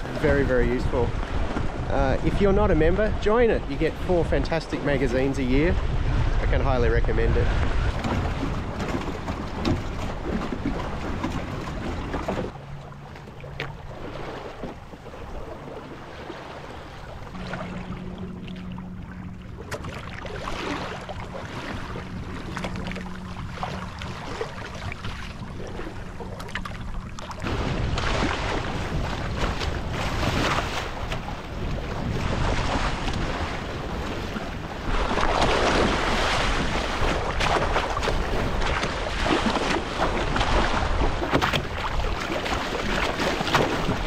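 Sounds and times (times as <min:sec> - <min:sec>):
wind buffeting microphone: 0:00.0 - 0:12.6, 0:13.5 - 0:44.0
water rushing along boat hull: 0:00.0 - 0:44.0
small splashes and knocks: 0:34.9 - 0:44.0.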